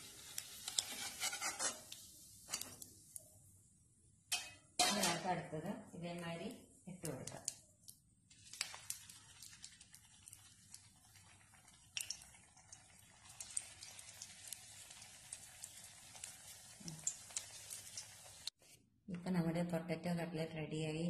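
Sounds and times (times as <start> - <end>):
oil sizzling with pops: 0.0 - 3.5, 4.2 - 5.3, 6.9 - 18.6.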